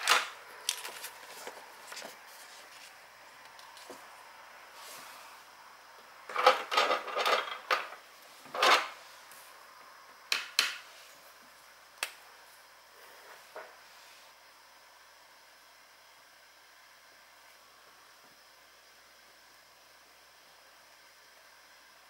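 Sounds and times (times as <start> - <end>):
paper rustling: 0.1 - 3.0.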